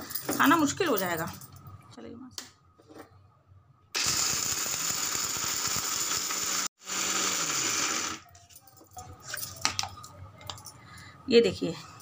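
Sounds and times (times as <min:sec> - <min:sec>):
mixer grinder grinding nuts: 0:04.0 - 0:08.2.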